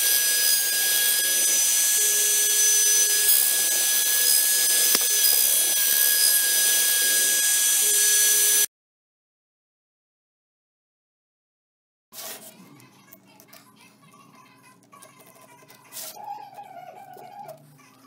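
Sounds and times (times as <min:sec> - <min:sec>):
router bit cutting wood hiss: 0:00.0 - 0:08.7
router spindle whine: 0:00.0 - 0:08.7.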